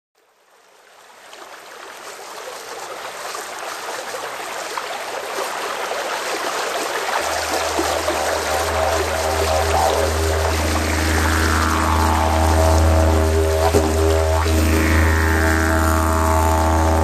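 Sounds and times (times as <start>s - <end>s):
running water stream: 0.2s - 17.0s
intro music: 7.2s - 17.0s
low steady drone: 7.2s - 17.0s.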